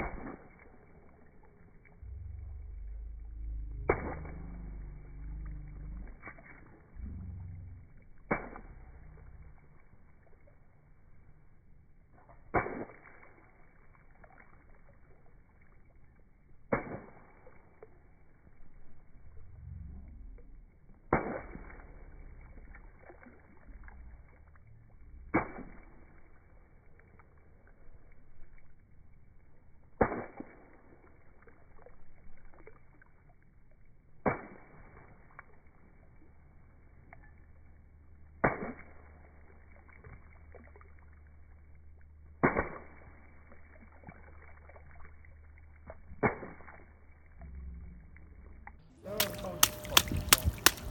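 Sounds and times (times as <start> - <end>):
shoe splashing in puddle: 0.0 - 10.6, 12.1 - 18.1, 21.0 - 24.4, 25.1 - 28.6, 29.8 - 33.1, 34.1 - 36.0, 38.4 - 41.1, 42.4 - 47.5, 49.0 - 50.9.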